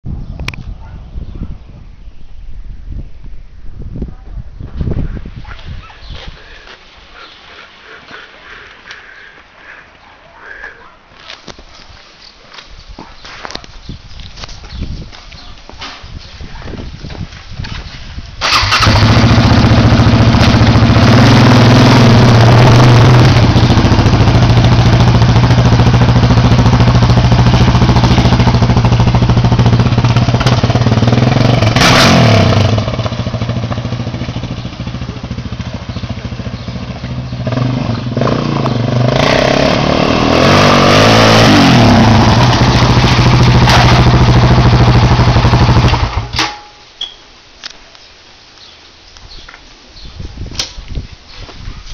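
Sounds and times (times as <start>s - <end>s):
quad engine revving: 18.4s - 46.4s.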